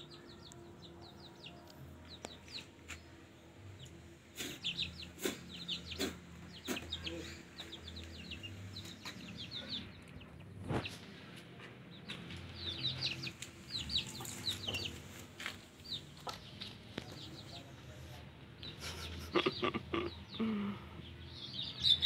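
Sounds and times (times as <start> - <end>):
chicks peeping: 0.1 - 3.1, 3.7 - 18.0, 18.6 - 22.0
chicken clucking: 4.4 - 17.5.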